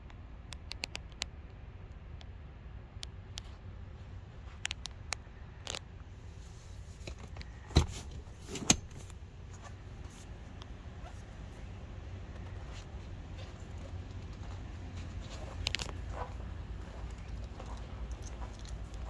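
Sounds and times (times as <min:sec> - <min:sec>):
small clicks: 0:00.0 - 0:01.6
low steady hum: 0:00.0 - 0:19.0.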